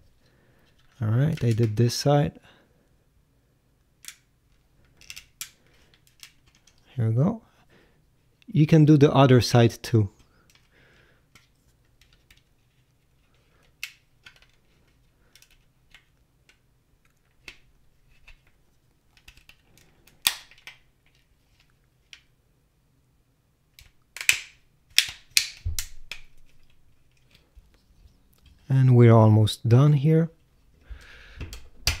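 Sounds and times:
plastic clips snapping: 19.2s - 20.8s, 23.8s - 27.4s.

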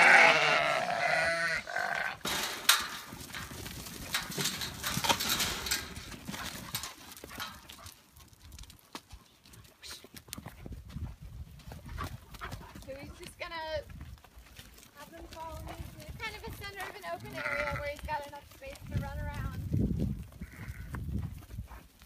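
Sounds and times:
sheep hooves on dirt: 0.0s - 22.0s.

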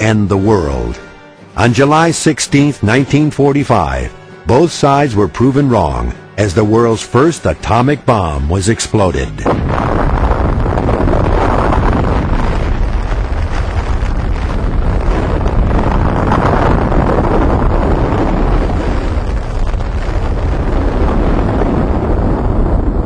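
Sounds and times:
explosion rumble: 9.3s - 23.0s.

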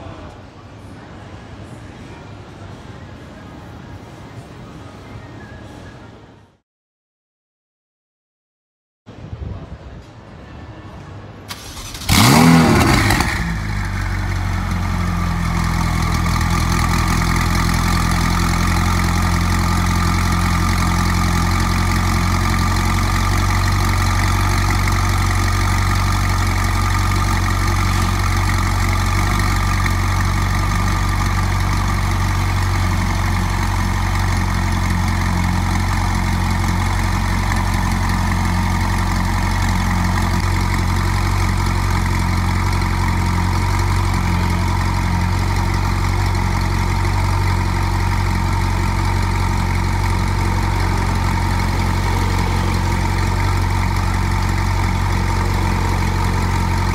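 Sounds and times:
car engine idling: 11.5s - 56.9s
sports car engine starting and revving: 11.5s - 56.9s.

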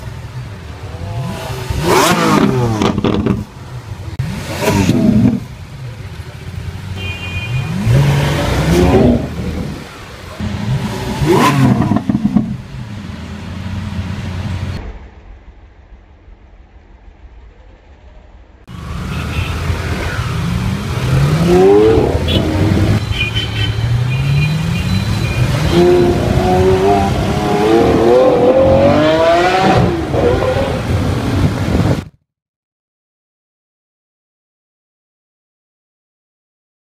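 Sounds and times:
sports car engine revving: 0.9s - 3.5s, 4.2s - 5.7s, 7.7s - 14.8s, 19.6s - 23.0s, 25.4s - 32.0s.

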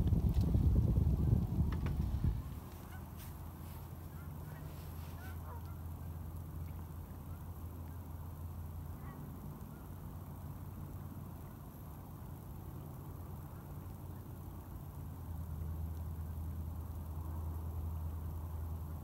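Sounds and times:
low steady rumble: 0.0s - 19.0s
geese honking: 4.1s - 5.8s.

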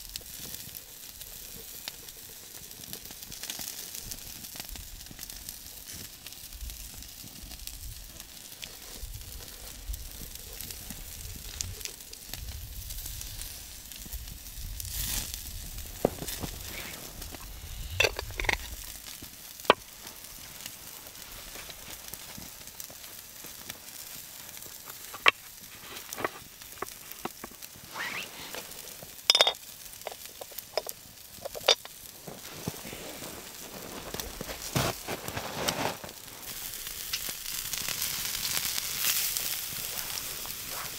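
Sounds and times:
food sizzling on a grill: 0.0s - 40.9s
pops and crackles: 0.2s - 40.9s.

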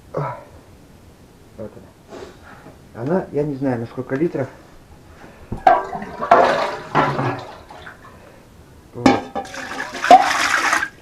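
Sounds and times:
water pouring into pot: 9.4s - 11.0s.

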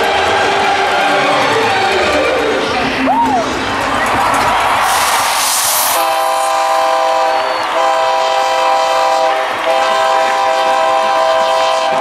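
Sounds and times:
crowd cheering: 0.0s - 12.0s
short hiss: 4.8s - 6.9s
air horn blasts: 5.4s - 12.0s.

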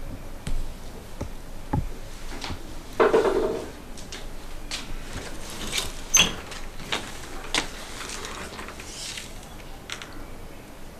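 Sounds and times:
door creak: 5.6s - 6.6s.

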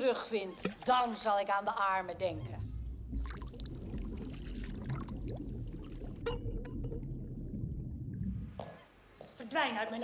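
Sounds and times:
underwater bubbling and gurgling: 2.4s - 8.9s.

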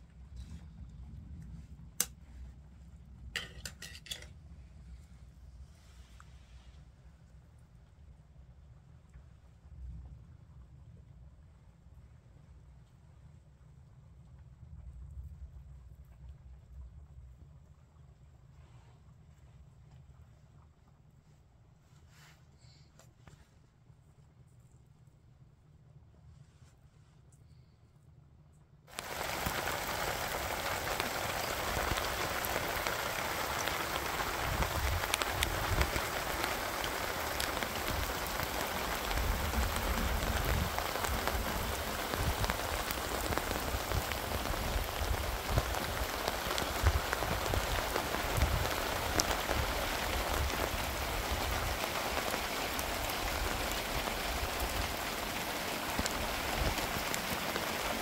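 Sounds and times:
steady rain falling: 0.0s - 20.4s, 28.9s - 58.0s.

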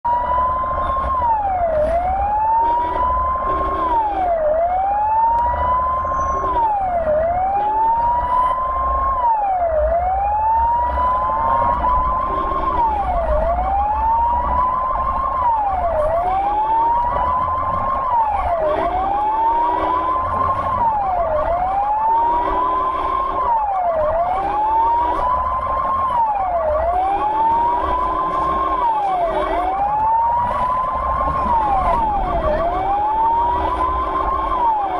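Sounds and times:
ambulance siren wailing: 0.0s - 34.9s
engine and road rumble: 0.0s - 34.9s
vehicle horn honks: 2.6s - 4.0s.

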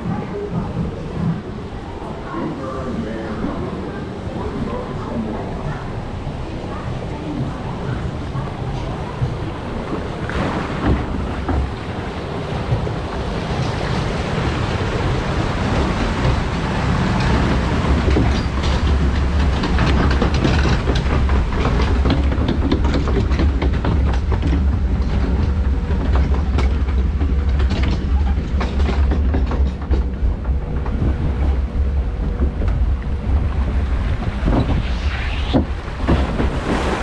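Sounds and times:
low mechanical drone: 0.0s - 37.0s
water rushing: 0.0s - 37.0s.

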